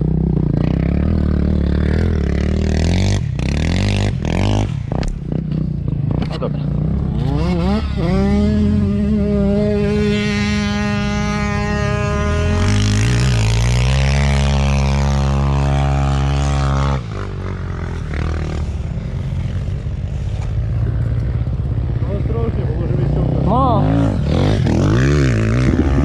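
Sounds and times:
dirt bike engine revving high: 0.0 - 5.4, 6.7 - 20.8, 21.9 - 26.0
deeper engine note: 7.4 - 25.0.

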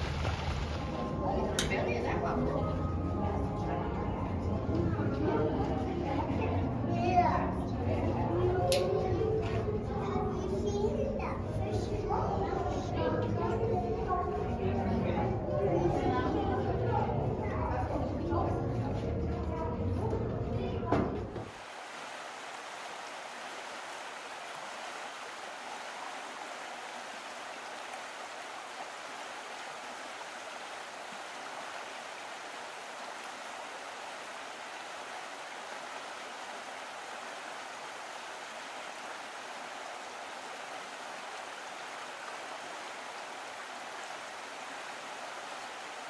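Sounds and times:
steady rushing hiss: 21.4 - 46.0.

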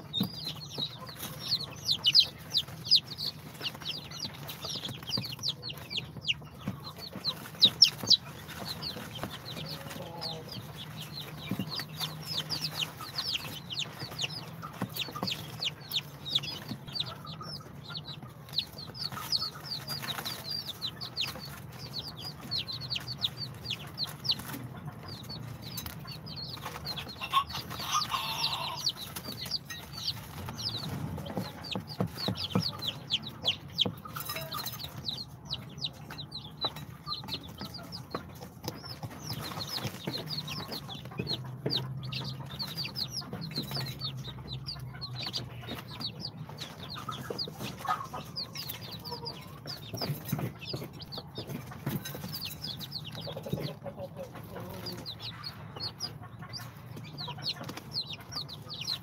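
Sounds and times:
chicks peeping: 0.0 - 59.0.

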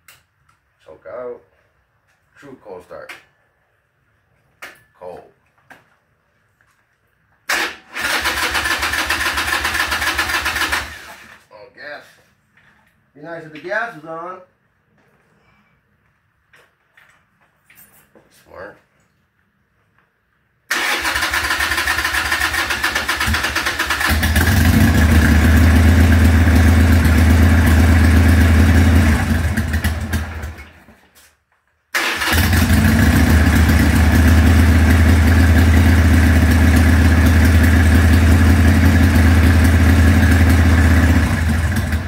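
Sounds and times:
motorcycle engine starting and idling: 7.5 - 11.4, 20.7 - 31.0, 31.9 - 42.0.

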